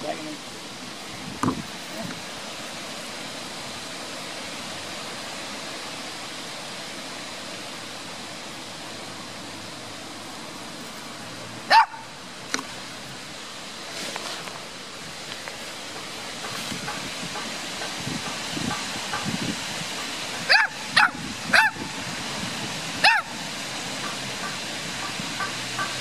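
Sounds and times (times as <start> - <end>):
steady outdoor hiss: 0.0 - 26.0
small dog barking: 11.7 - 12.1, 20.5 - 21.8, 23.0 - 23.4.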